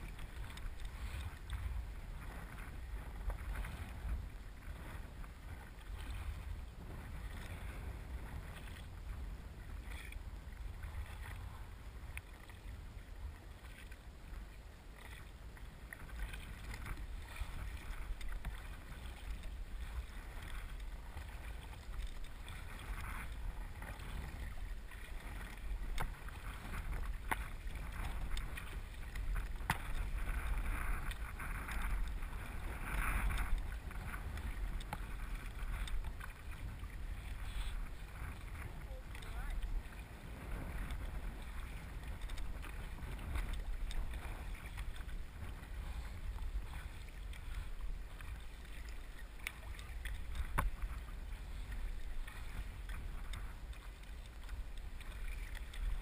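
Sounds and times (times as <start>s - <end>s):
paddles splashing in water: 0.0s - 56.0s
wind on microphone: 0.0s - 56.0s
light sharp ticks: 48.8s - 50.9s.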